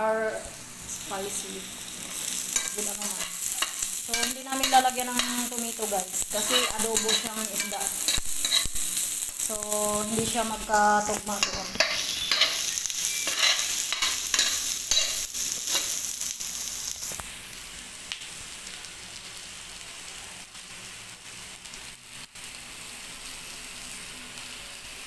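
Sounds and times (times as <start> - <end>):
vegetables sizzling in oil: 0.0 - 25.0
spoon scraping and stirring: 6.4 - 8.8, 13.2 - 16.0.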